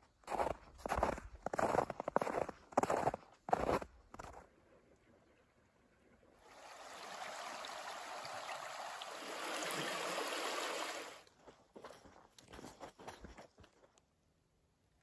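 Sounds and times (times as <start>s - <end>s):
creek water running over rocks: 6.4s - 11.3s.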